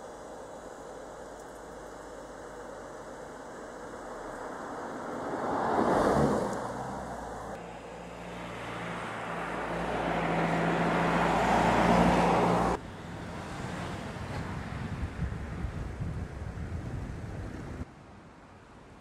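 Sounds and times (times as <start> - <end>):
car driving past: 4.3 - 12.8
wind noise on microphone: 12.9 - 17.9.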